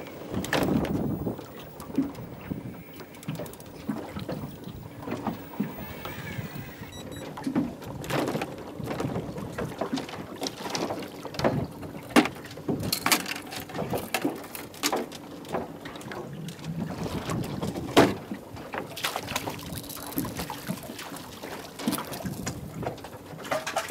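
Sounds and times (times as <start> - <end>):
water splashing: 0.0 - 7.0, 18.9 - 23.9
knocks and clatter on a boat: 0.0 - 23.9.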